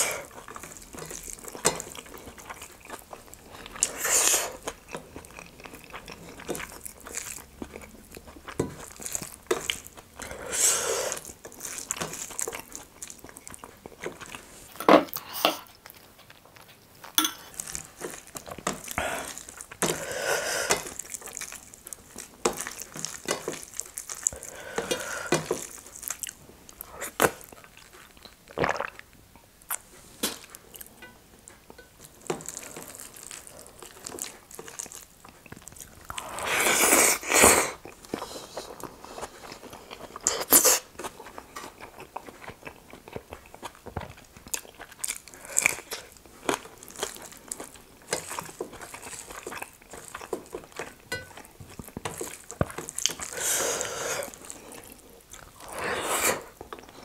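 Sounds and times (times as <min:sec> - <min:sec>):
food mixed by hand on plate: 0:00.2 - 0:28.3, 0:29.7 - 0:37.3, 0:41.0 - 0:55.6
wet chewing clicks and smacks: 0:39.8 - 0:53.4.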